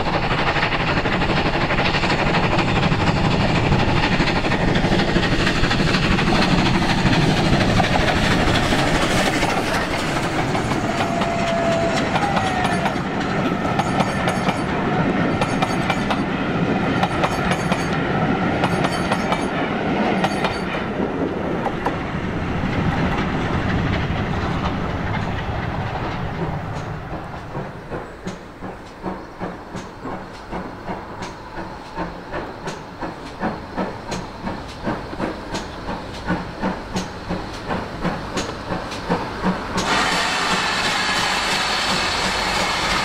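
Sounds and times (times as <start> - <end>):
loud steam hiss: 0.0 - 19.4, 26.4 - 43.0
steam locomotive exhaust beats: 0.0 - 43.0
train coaches rumbling on rails: 0.0 - 43.0.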